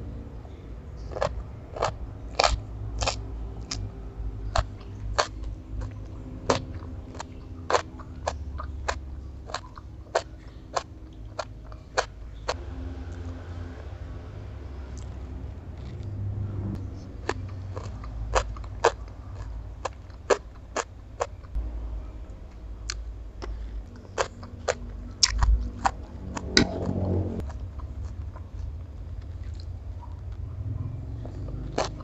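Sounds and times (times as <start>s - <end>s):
person chewing crunchy food: 0.5s - 21.6s, 22.8s - 30.4s, 31.2s - 32.0s.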